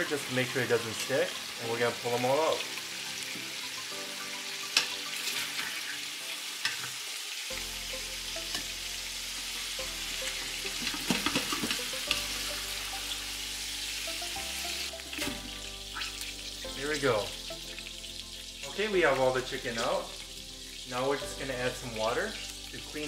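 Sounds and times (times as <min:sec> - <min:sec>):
chicken sizzling in oil: 0:00.0 - 0:23.0.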